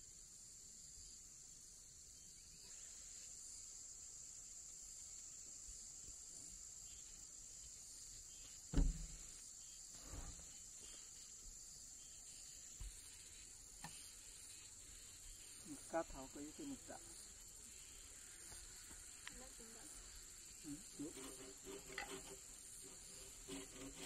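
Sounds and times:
high-pitched insect chorus: 0:00.0 - 0:24.0
dull thumps: 0:08.7 - 0:09.4.

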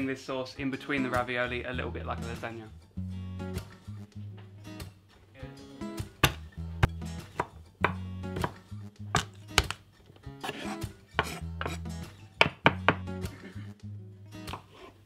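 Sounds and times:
knife chopping on wooden board: 0:06.2 - 0:06.4, 0:07.3 - 0:09.8, 0:10.4 - 0:11.8, 0:12.4 - 0:13.1, 0:14.4 - 0:14.9.

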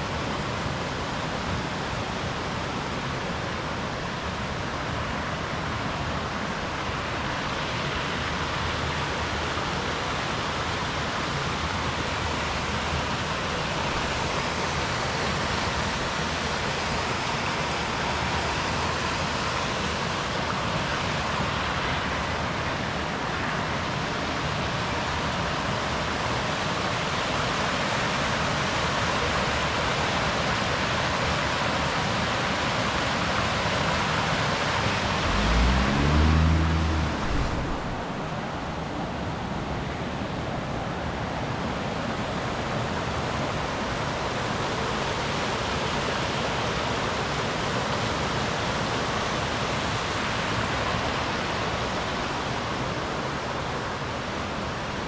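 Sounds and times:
water rushing: 0:00.0 - 0:55.0.

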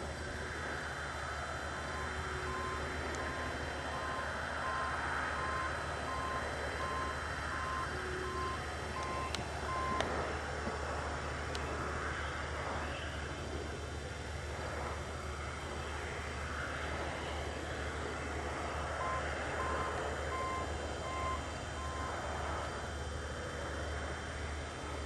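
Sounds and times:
combine harvesters droning: 0:00.0 - 0:25.0
backup alarm beeping: 0:01.8 - 0:10.2, 0:18.9 - 0:22.2.

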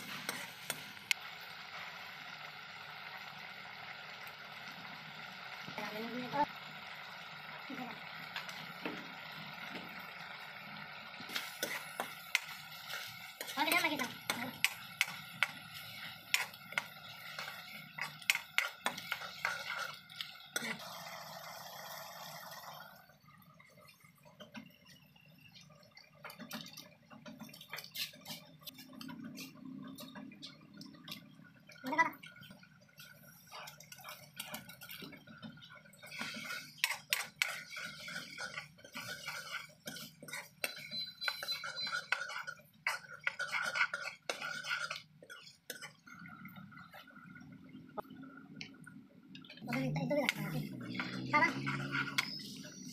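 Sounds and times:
metal ladle scraping a pan: 0:00.0 - 0:00.8, 0:11.3 - 0:20.8, 0:36.0 - 0:46.0, 0:50.4 - 0:52.9.

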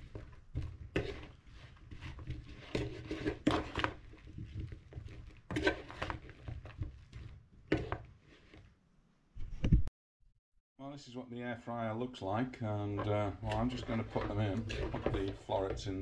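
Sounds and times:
metal spoon scraping ceramic bowl: 0:05.5 - 0:06.3.

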